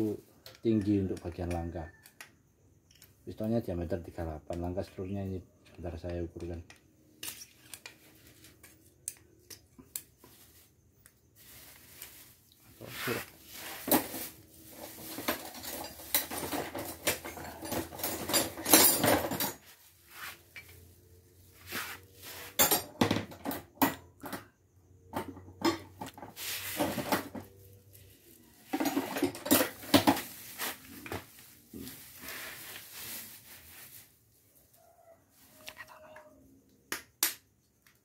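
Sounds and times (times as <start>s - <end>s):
metal tools clattering in tray: 13.8s - 19.7s, 22.5s - 24.4s, 28.6s - 30.4s.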